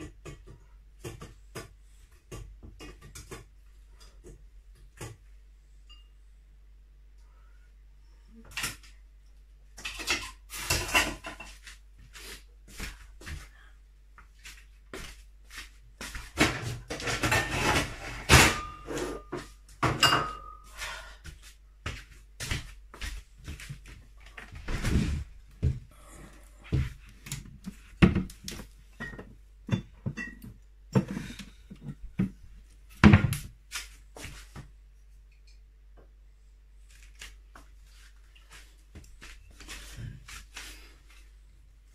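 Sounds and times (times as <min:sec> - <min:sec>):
clatter in a kitchen: 0:00.0 - 0:06.2, 0:08.3 - 0:13.5, 0:15.5 - 0:36.2.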